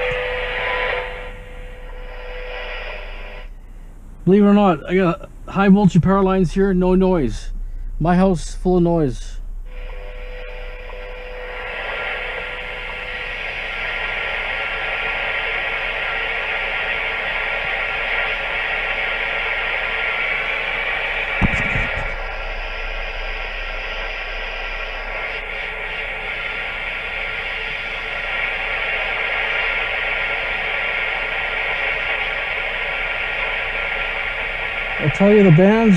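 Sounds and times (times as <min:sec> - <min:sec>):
radio band hiss: 0:00.0 - 0:35.9
short low thump: 0:21.4 - 0:22.2.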